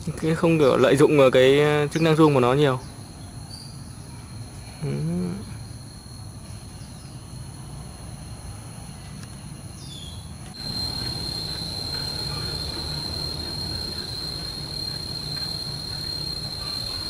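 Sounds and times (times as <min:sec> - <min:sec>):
faint bird chirps: 0:09.8 - 0:17.0
high-pitched insect drone: 0:10.6 - 0:17.0.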